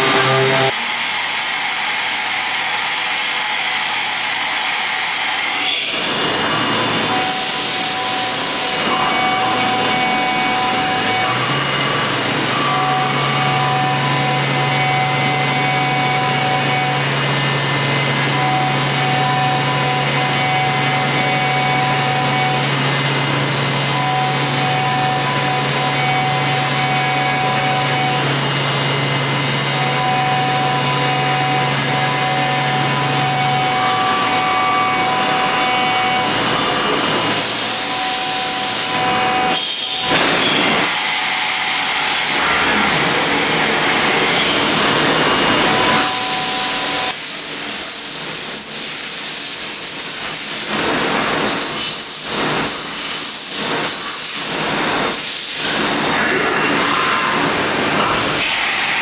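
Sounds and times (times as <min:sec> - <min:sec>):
falling tone: 0:00.0 - 0:00.8
milling machine spindle running: 0:00.0 - 0:47.2.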